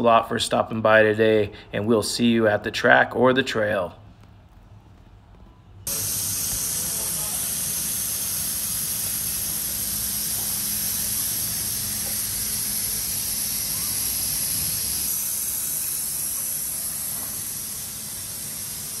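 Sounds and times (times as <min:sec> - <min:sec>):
low hum: 0:04.6 - 0:19.0
steady hiss: 0:05.9 - 0:19.0.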